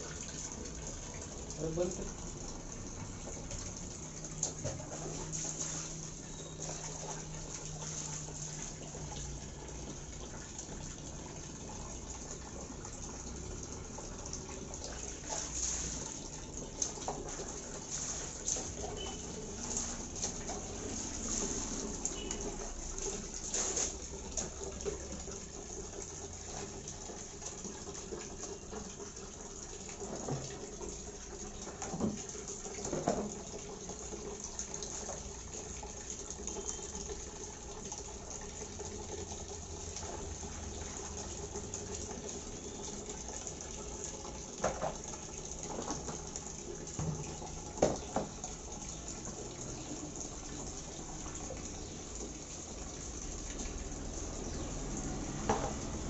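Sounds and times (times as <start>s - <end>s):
water splashing in basins: 0.0s - 56.0s
water splashing onto concrete: 3.3s - 9.2s, 14.6s - 25.5s.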